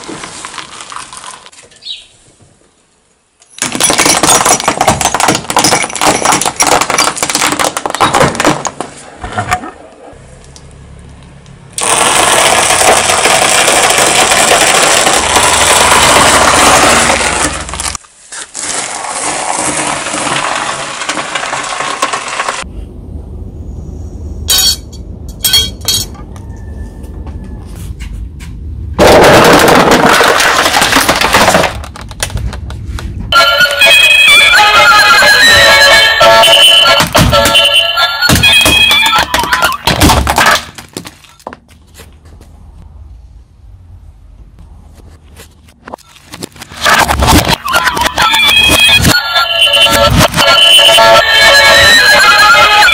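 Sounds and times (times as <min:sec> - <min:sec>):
plastic packaging crackling: 0:11.8 - 0:22.6
tyre crunching crumbly material: 0:11.9 - 0:22.4.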